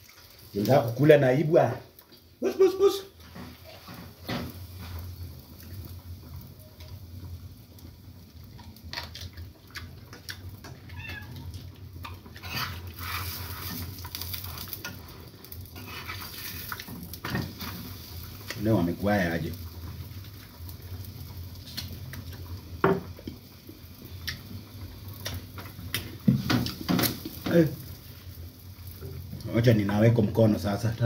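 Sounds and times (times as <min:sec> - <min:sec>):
cat meowing faintly: 0:10.7 - 0:11.7.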